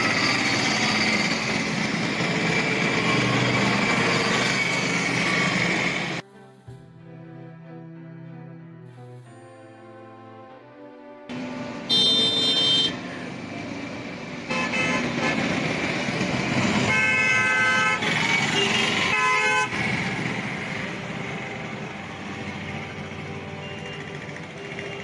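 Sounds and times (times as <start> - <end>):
vehicle horns honking: 11.4 - 13.3, 14.5 - 15.7, 16.8 - 20.1, 23.0 - 25.0.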